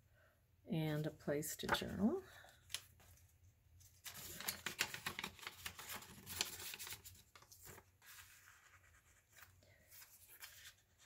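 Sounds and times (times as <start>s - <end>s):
paper rustling and crinkling: 2.5s - 11.0s.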